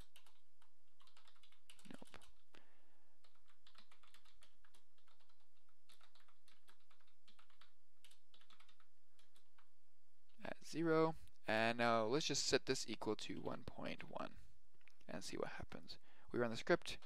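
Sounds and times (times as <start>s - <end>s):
typing on computer keyboard: 0.0s - 2.4s, 3.2s - 9.7s.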